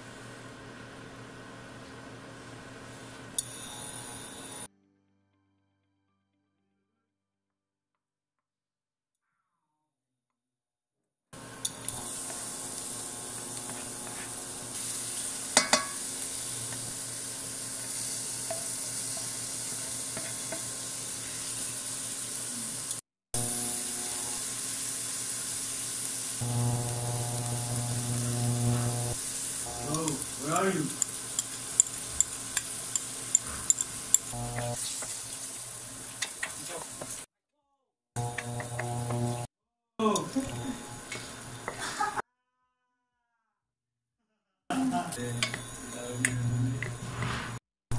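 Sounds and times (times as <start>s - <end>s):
vegetables sizzling in oil: 11.4s - 37.3s, 38.2s - 39.5s
spatula stirring in pan: 12.1s - 22.1s, 29.2s - 37.2s
low electric hum: 26.4s - 32.9s, 33.8s - 34.8s, 38.2s - 39.5s
spatula clicking against pan: 31.0s - 34.3s.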